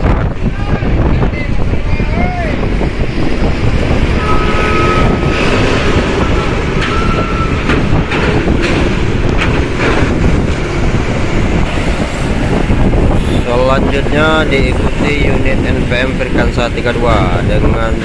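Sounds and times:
bus engine low rumble: 0.0 - 18.0
clanks and rattles of steel ramp: 5.0 - 13.2.

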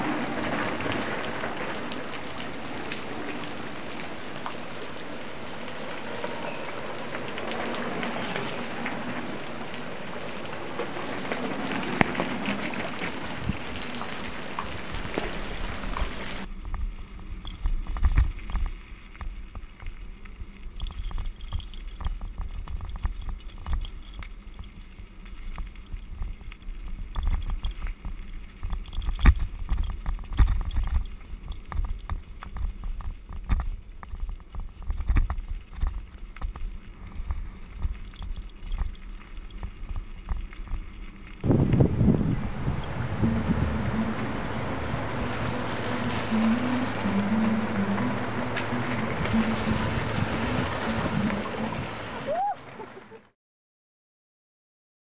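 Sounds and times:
even hiss with crackle: 0.0 - 52.9
wind buffeting microphone: 41.4 - 52.2.

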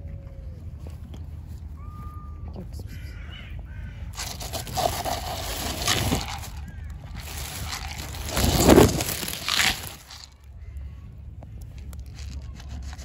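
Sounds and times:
plastic bag rustling: 4.2 - 10.4, 12.0 - 13.0.

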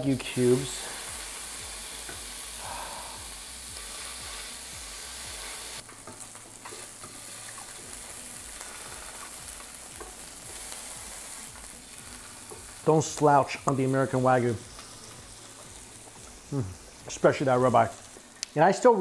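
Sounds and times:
beef sizzling in a frying pan: 0.0 - 19.0.

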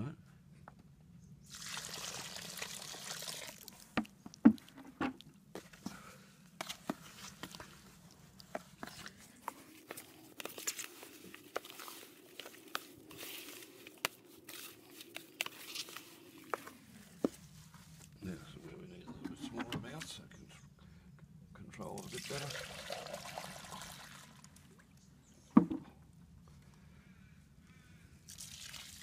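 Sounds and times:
faint steady hum: 0.0 - 29.0
water pouring into plastic bowl: 1.5 - 3.9, 22.0 - 24.7, 28.3 - 29.0.

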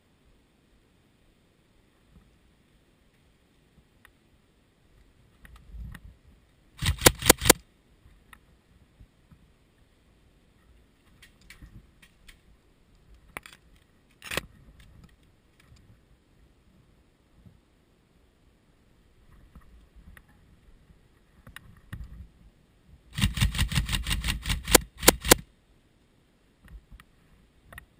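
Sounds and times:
faint clicks: 3.1 - 4.2, 10.6 - 15.9
airsoft rifle shots: 6.8 - 7.6, 23.2 - 25.4.

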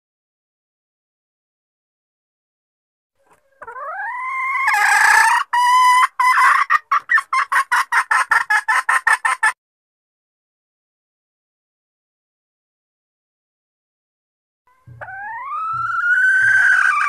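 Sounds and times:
junglefowl hen calling: 3.2 - 9.6, 14.7 - 17.0.

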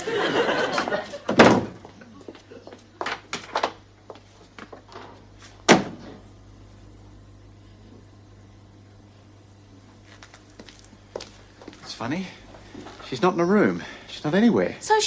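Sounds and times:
cupboard door thump: 1.3 - 1.8
front door banging shut: 1.3 - 1.9, 5.0 - 6.2
footsteps: 1.6 - 5.7, 9.8 - 13.4.

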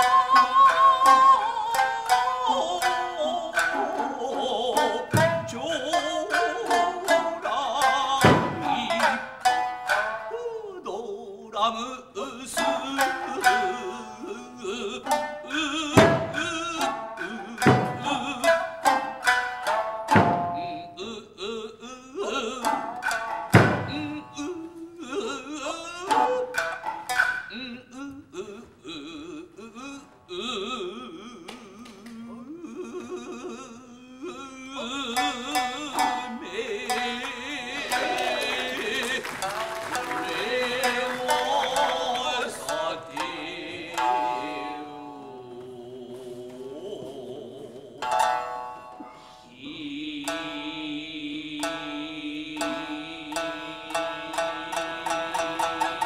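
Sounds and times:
plucked shamisen: 0.0 - 46.4, 47.7 - 56.0
sharp percussion strikes: 22.9 - 24.3.

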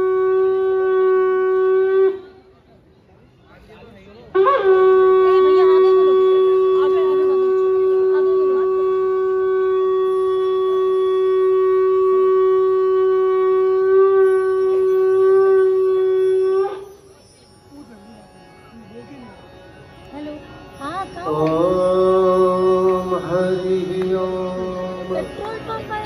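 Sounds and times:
conch shell blast: 4.4 - 17.2.

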